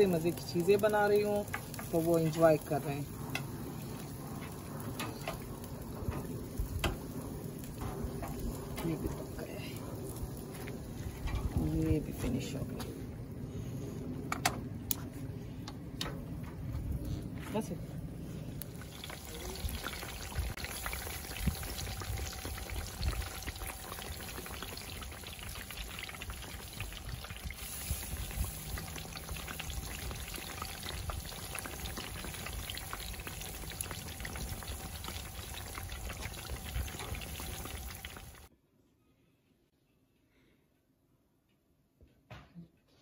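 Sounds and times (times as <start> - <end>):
patties sizzling in hot oil: 0.0 - 12.6, 18.6 - 38.5.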